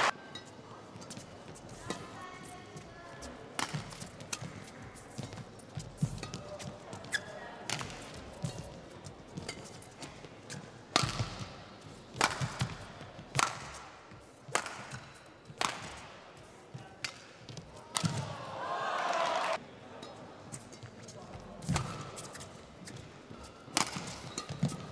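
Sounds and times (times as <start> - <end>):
rackets striking shuttlecock: 3.6 - 6.8, 7.6 - 8.8, 9.4 - 16.2, 17.0 - 18.3, 23.7 - 24.9.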